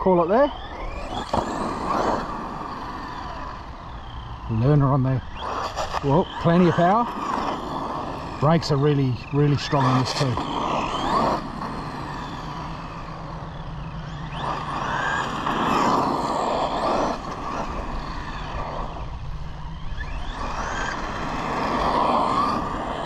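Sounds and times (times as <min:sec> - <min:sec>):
electric motor whining: 0:00.0 - 0:23.0.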